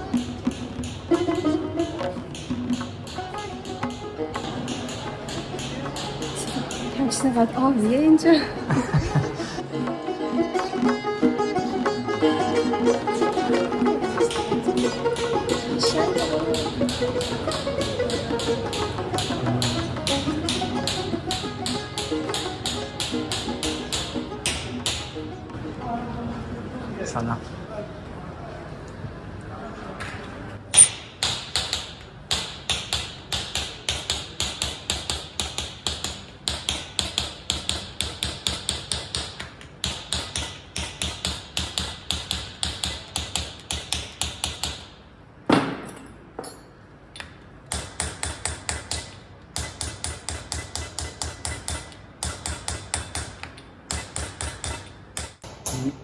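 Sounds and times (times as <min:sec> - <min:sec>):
hammer tapping chisel on metal: 0:00.0 - 0:07.4, 0:14.1 - 0:25.2, 0:30.7 - 0:45.0, 0:45.8 - 0:55.8.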